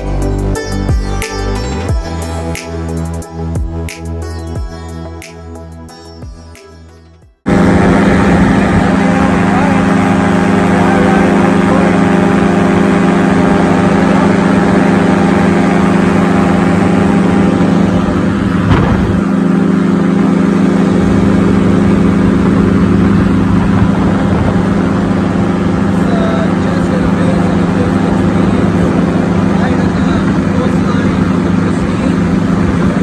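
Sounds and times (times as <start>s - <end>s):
paramotor engine and propeller: 7.4s - 33.0s.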